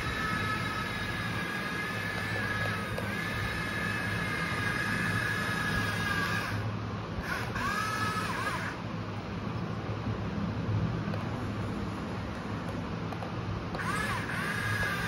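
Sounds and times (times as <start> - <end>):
toy excavator motors whining: 0.0 - 8.8, 13.7 - 15.0.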